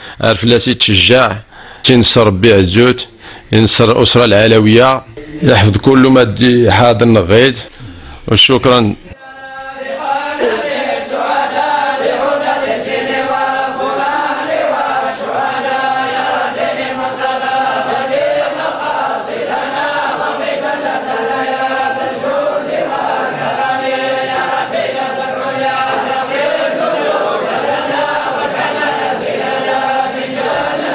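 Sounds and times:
group chanting in unison: 9.1s - 30.9s.

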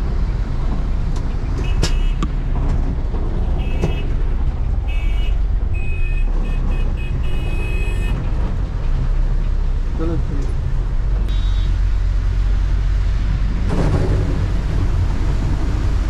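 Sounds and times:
bus engine rumble: 0.0s - 16.0s
tyres on wet road: 0.0s - 16.0s
vehicle horns honking: 1.6s - 2.2s, 4.9s - 8.2s, 11.3s - 11.8s.

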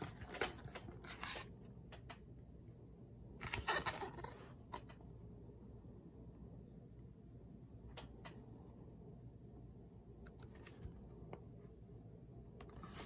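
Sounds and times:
book pages and cover rustling: 0.0s - 1.6s, 3.4s - 5.0s, 12.6s - 13.0s.

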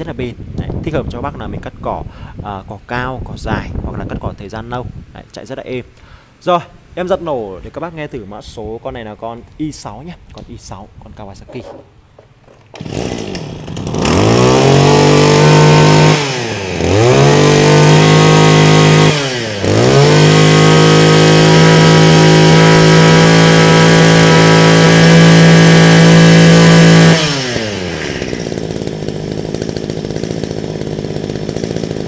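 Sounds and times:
brush cutter engine revving: 12.5s - 32.0s.

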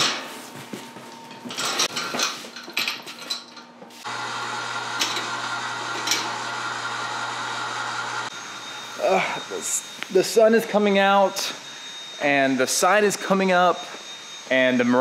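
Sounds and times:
electric hoist motor hum: 4.0s - 12.2s.

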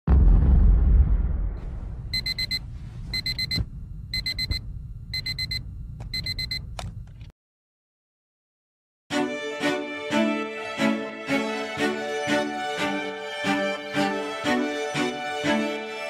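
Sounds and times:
low rumble: 0.1s - 6.0s
alarm clock beeping: 2.2s - 4.6s, 5.2s - 6.6s.

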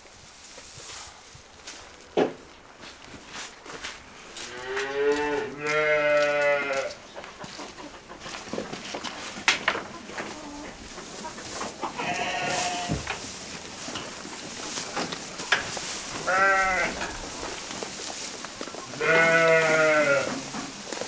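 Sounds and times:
rustling: 0.0s - 6.0s, 7.6s - 21.0s
sheep bleating: 4.6s - 6.9s, 12.0s - 13.0s, 16.2s - 17.0s, 18.9s - 20.4s.

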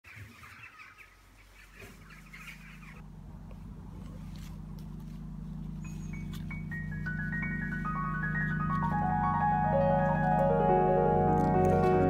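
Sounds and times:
birds chirping: 0.0s - 12.0s
low music drone: 2.9s - 12.0s.

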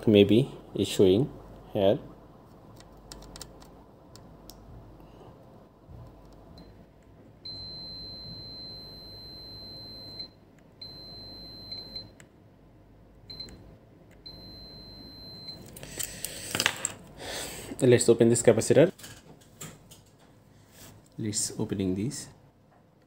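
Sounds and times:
multimeter continuity beep: 7.4s - 12.2s, 13.3s - 13.6s, 14.2s - 15.6s
loud clattering handling noise: 15.7s - 17.1s.

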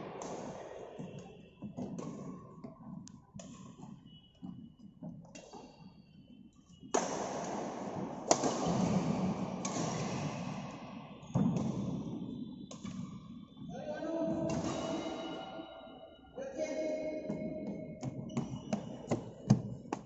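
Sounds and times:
rackets striking shuttlecock: 0.0s - 4.0s, 6.9s - 11.9s, 12.7s - 13.2s.

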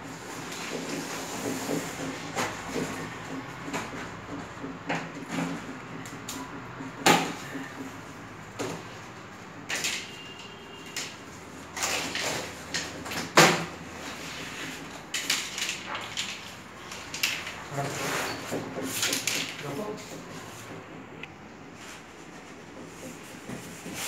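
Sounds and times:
hands knocking on cardboard: 22.7s - 24.0s.

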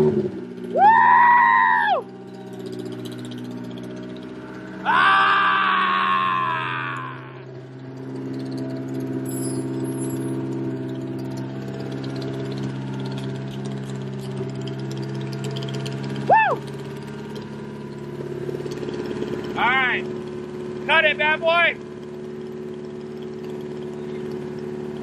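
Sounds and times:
engine idling with clacking: 0.0s - 5.2s, 6.4s - 25.0s
person shouting: 0.7s - 2.0s, 4.8s - 7.5s, 16.3s - 16.7s.

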